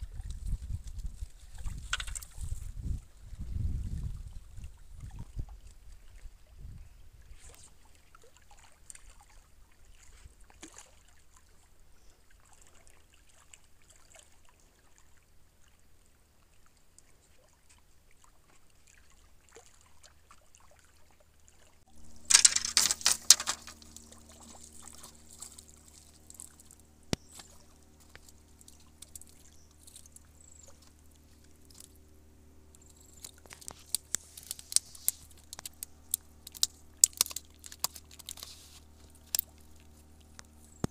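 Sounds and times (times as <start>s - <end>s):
water splashing on rocky shore: 22.0s - 27.6s
sharp crackles: 22.0s - 32.0s, 32.7s - 40.9s.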